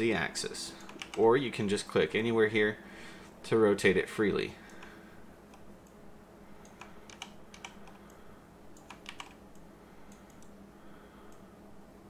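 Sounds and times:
low steady hum: 0.0s - 12.0s
faint computer clicking: 0.7s - 1.4s, 4.6s - 6.0s, 6.6s - 10.6s, 11.2s - 11.5s.

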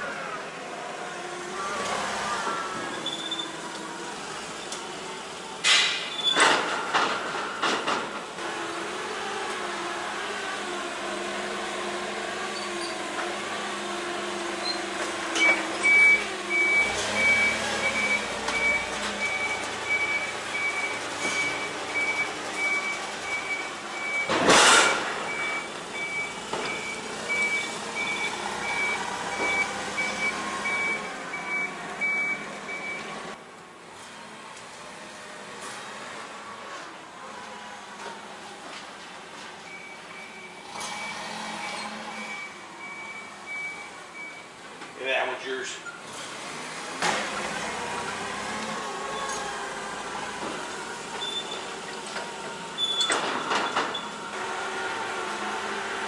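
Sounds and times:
forklift engine running: 0.0s - 33.9s, 46.0s - 56.0s
reverse alarm beeping: 15.4s - 24.3s, 25.3s - 33.1s.

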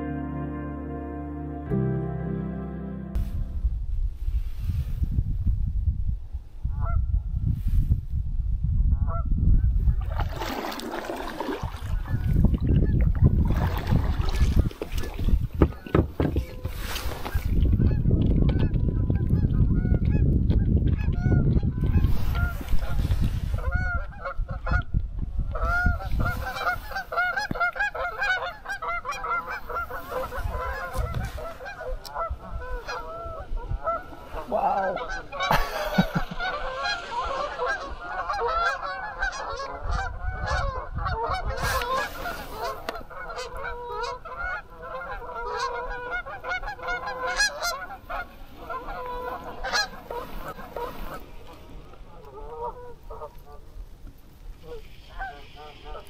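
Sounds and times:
low rumble: 0.0s - 7.4s
geese honking: 23.5s - 24.8s, 25.6s - 53.8s, 54.6s - 56.0s.

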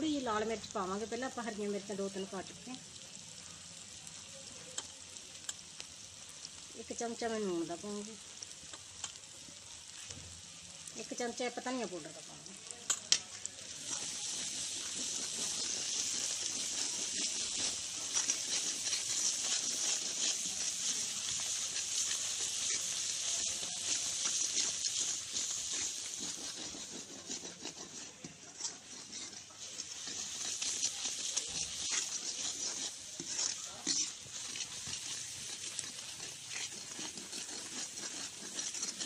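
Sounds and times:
spices sizzling in oil: 0.0s - 39.0s
steel ladle stirring in pan: 11.0s - 39.0s.

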